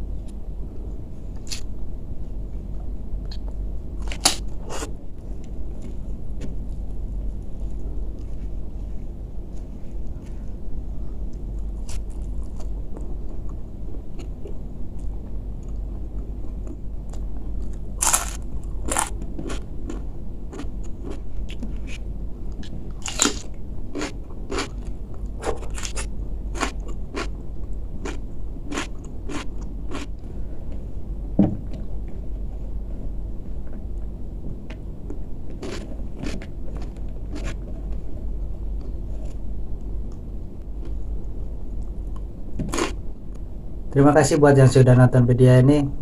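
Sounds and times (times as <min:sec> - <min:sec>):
chewing crunchy raw vegetables: 0:11.3 - 0:14.4, 0:15.0 - 0:30.2, 0:35.1 - 0:38.0, 0:42.1 - 0:43.0
low thump: 0:31.4 - 0:31.8.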